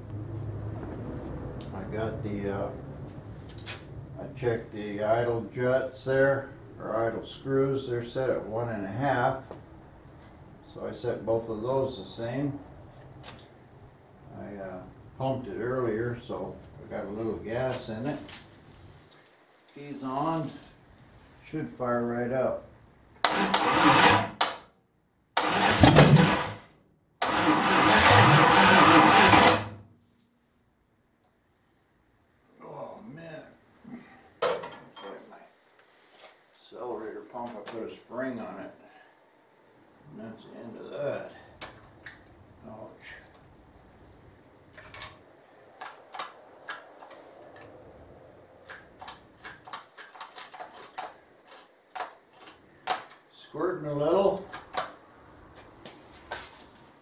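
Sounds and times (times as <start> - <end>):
engine cranking on starter: 23.2 - 24.4, 25.4 - 29.8.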